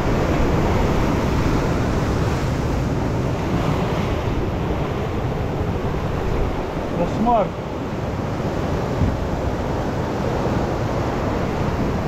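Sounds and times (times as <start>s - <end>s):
waves breaking on shore: 0.0s - 12.0s
wind noise on microphone: 0.0s - 12.0s.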